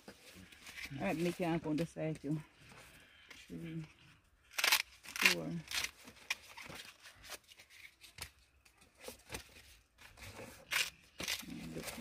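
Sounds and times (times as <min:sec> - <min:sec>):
corn husks rustling and tearing: 0:10.1 - 0:12.0.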